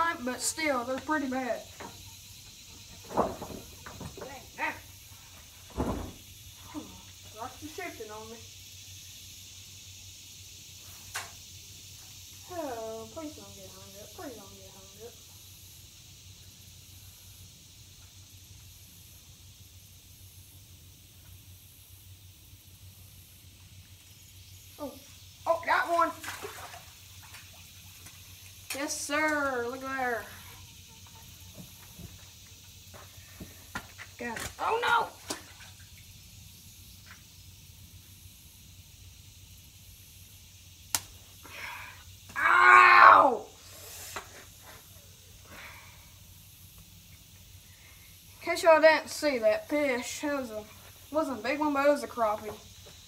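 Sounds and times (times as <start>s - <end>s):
high hiss: 0.0s - 53.0s
faint ticks: 40.9s - 41.1s.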